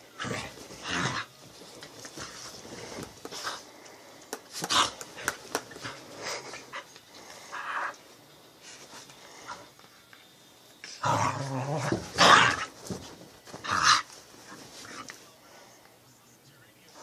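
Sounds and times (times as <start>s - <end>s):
dogs scuffling: 0.2s - 3.8s, 11.5s - 15.3s.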